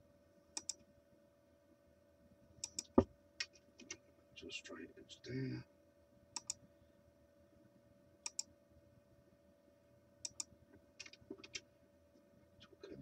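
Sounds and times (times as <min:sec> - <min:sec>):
faint steady hum: 0:00.0 - 0:13.0
computer mouse and keyboard clicks: 0:00.6 - 0:00.8, 0:02.6 - 0:04.0, 0:06.4 - 0:06.6, 0:08.3 - 0:08.5, 0:10.2 - 0:11.7.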